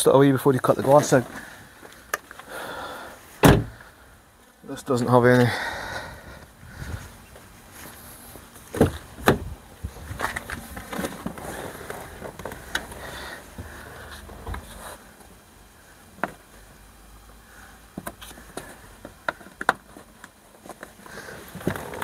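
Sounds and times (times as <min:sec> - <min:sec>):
car door click: 0:03.4 - 0:03.8.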